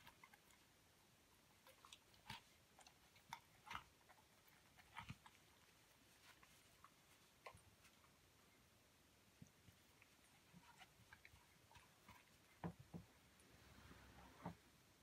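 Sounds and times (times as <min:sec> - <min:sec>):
dog chewing a ball: 0:01.6 - 0:07.9.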